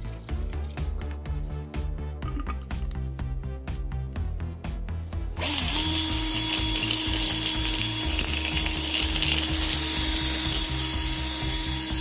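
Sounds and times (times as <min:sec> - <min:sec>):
cordless drill running: 0:05.4 - 0:12.0
pieces rattling in glass jar: 0:06.1 - 0:11.1.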